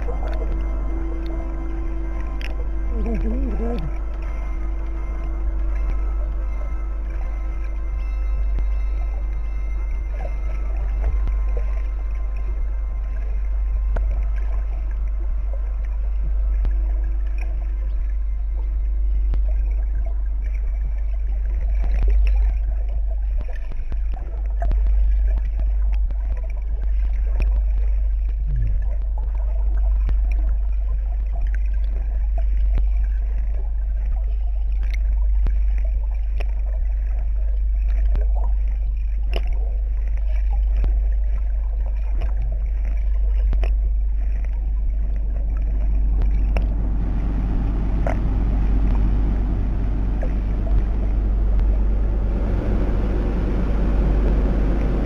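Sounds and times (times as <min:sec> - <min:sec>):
cable car rumbling: 0:46.0 - 0:55.0.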